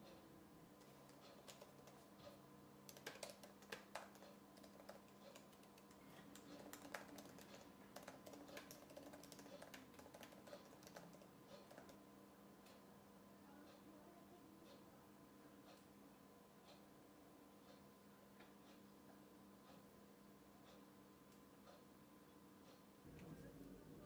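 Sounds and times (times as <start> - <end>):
laptop keyboard typing: 0.8 - 12.0.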